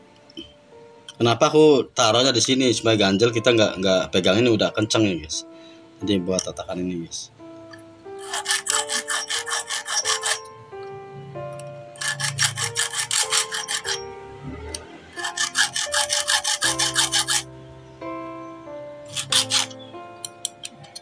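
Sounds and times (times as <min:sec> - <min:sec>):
background music: 0:00.0 - 0:21.0
hand file rasping on metal: 0:08.2 - 0:10.5, 0:12.0 - 0:14.0, 0:15.1 - 0:17.4, 0:19.1 - 0:19.8.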